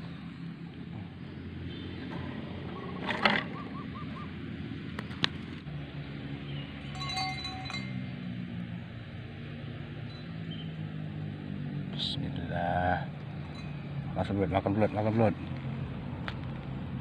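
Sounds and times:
high chiming tones: 0:06.8 - 0:08.1.

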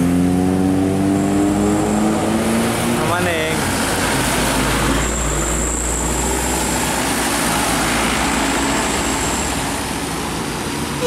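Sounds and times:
truck diesel engine passing: 0:00.0 - 0:11.0
tyres hissing on wet road: 0:02.4 - 0:11.0.

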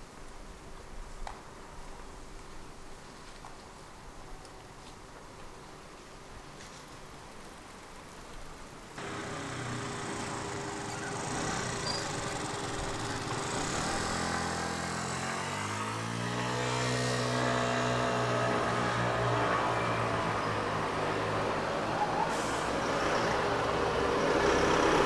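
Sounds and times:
street traffic noise: 0:09.0 - 0:25.0
vehicle engine approaching: 0:09.0 - 0:25.0.

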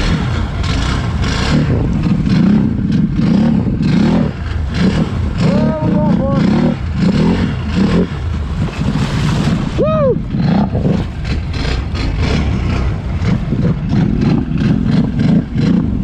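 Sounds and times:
atv engine running under load: 0:00.0 - 0:16.0
water churning and splashing: 0:00.0 - 0:16.0
high rising-and-falling whoop: 0:09.8 - 0:10.3.

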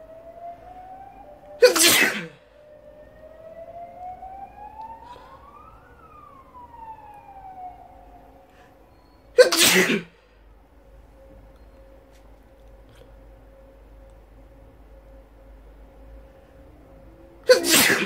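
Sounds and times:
faint siren: 0:00.0 - 0:18.0
person sneezing: 0:01.6 - 0:02.4, 0:09.4 - 0:10.2, 0:17.5 - 0:18.0.

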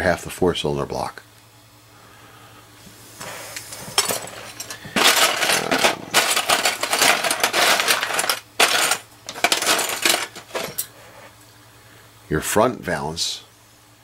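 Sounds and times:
plastic parts clattering: 0:03.7 - 0:10.9.

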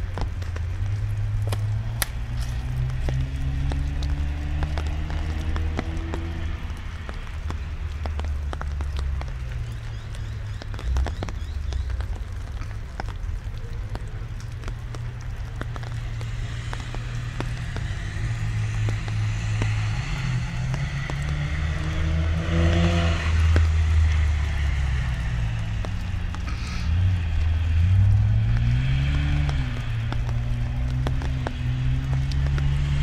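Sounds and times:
car engine accelerating: 0:00.0 - 0:09.5, 0:14.3 - 0:33.0
light rain ticking: 0:00.0 - 0:33.0
tyres hissing on wet track: 0:15.6 - 0:33.0.

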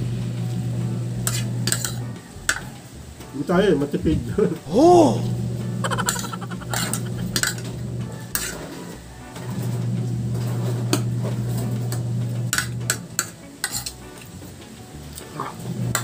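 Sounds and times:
cutlery clinking on a ceramic plate: 0:01.3 - 0:02.6, 0:05.9 - 0:07.7, 0:12.5 - 0:14.0.

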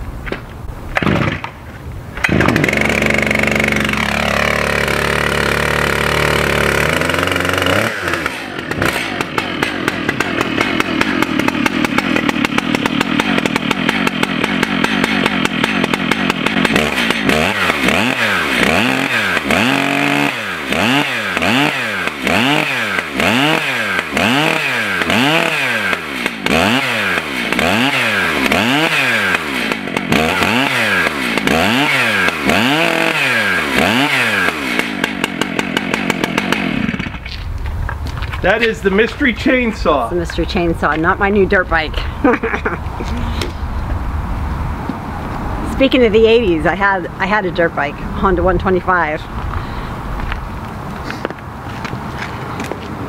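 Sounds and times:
chainsaw engine revving: 0:01.0 - 0:01.5, 0:02.2 - 0:37.3.

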